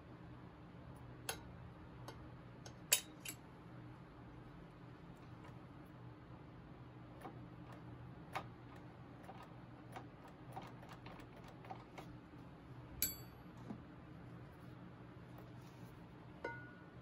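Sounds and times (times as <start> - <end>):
steady low hum: 0.0 - 17.0
ringing metal clink: 13.0 - 13.4, 16.4 - 16.8.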